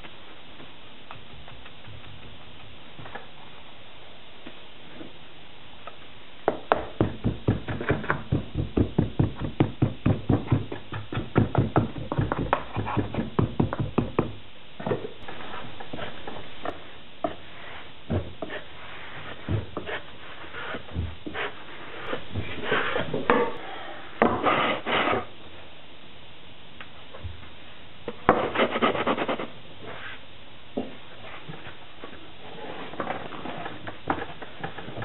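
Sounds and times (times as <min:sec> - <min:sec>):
wooden rammer knocking sand: 0:06.5 - 0:14.4.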